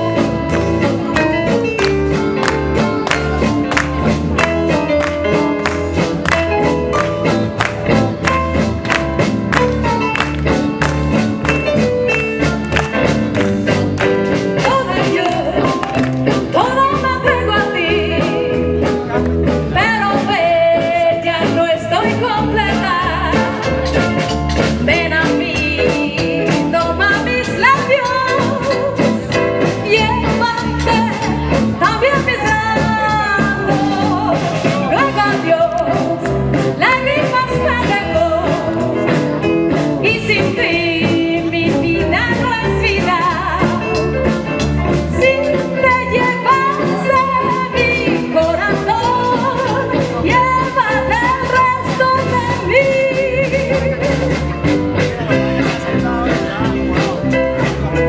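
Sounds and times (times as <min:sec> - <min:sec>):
electric guitars: 0:00.0 - 0:58.0
live rock band: 0:00.0 - 0:58.0
person singing: 0:24.8 - 0:39.3.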